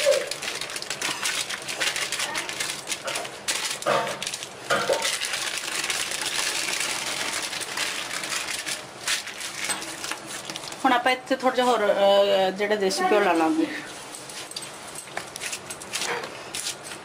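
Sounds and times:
paper sheets rustling and crinkling: 0.0 - 11.9.

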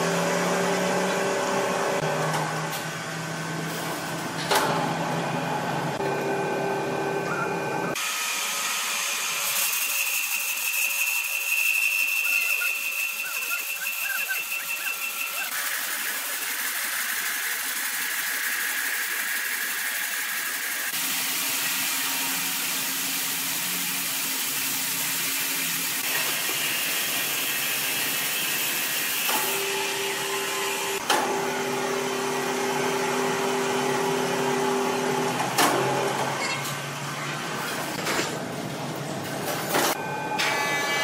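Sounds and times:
steady motor hum: 0.0 - 9.5
band saw blade sawing timber: 9.3 - 21.0.

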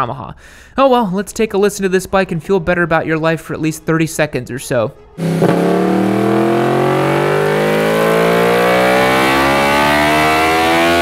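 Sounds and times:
motorcycle engine revving: 5.2 - 11.0.

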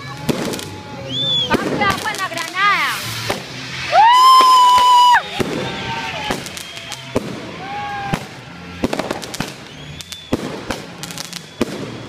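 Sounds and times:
firecrackers cracking: 0.0 - 12.0
short whistling tones: 1.0 - 1.6, 4.4 - 7.1, 9.4 - 10.6, 11.3 - 12.0
fire extinguishers hissing: 1.0 - 7.1.

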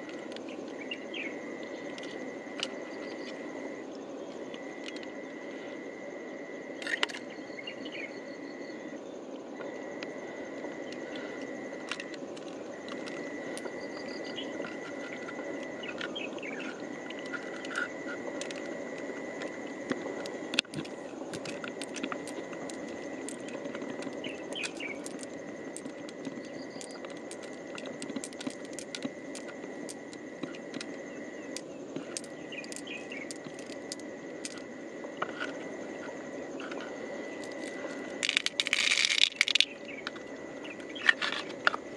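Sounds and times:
insect trilling: 0.0 - 41.9
pearls clicking together: 19.4 - 34.6, 36.6 - 41.8.

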